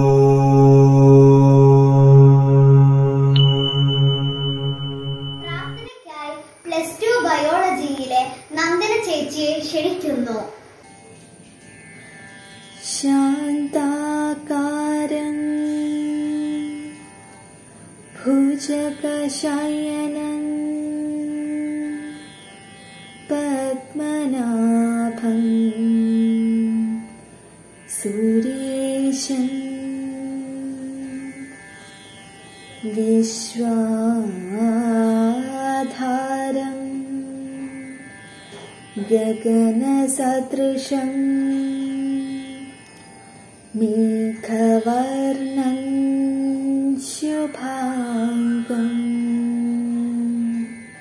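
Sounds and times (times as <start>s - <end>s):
woman singing unaccompanied: 12.8s - 17.3s, 18.1s - 22.3s, 23.3s - 27.2s, 27.9s - 31.5s, 32.8s - 37.8s, 38.9s - 42.8s, 43.7s - 50.8s.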